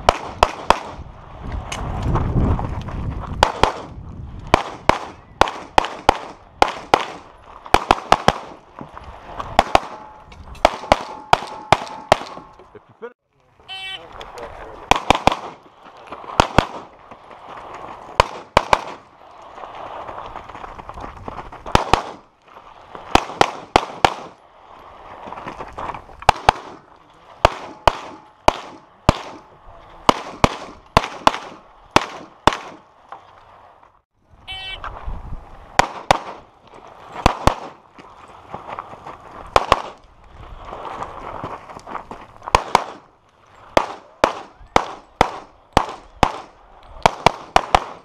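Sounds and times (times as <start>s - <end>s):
rapid pistol shots: 4.5s - 8.6s, 10.6s - 12.4s, 14.9s - 15.6s, 16.4s - 16.9s, 23.1s - 24.4s, 26.3s - 26.8s, 27.4s - 29.5s, 30.1s - 32.8s, 43.8s - 48.0s.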